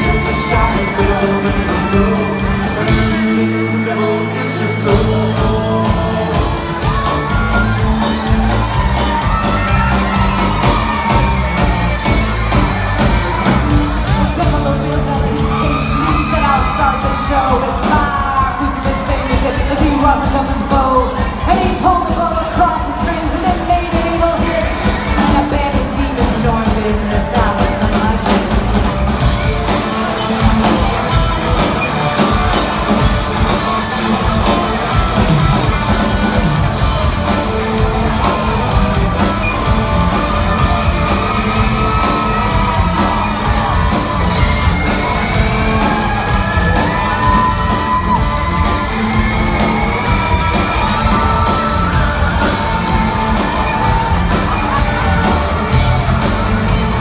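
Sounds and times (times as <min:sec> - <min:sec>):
person singing: 0:00.0 - 0:28.9
country-rock band playing: 0:00.0 - 0:57.0
crowd yelling: 0:00.0 - 0:57.0.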